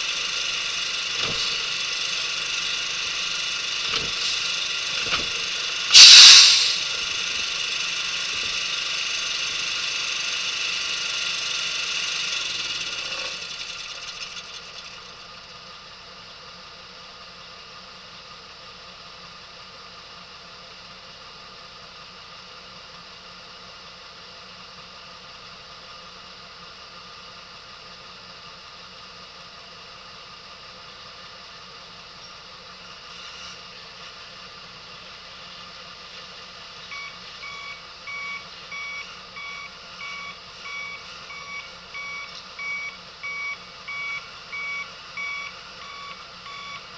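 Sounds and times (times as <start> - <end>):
very loud burst of noise: 0.0 - 14.3
engine winding down: 0.0 - 15.6
engine running: 0.0 - 46.9.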